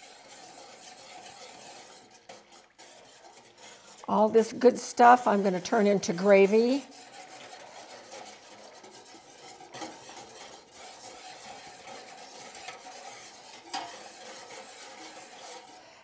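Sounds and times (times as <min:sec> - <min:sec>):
whisk wires clicking on pan: 0:00.0 - 0:15.8
whisk swishing liquid: 0:00.0 - 0:16.0.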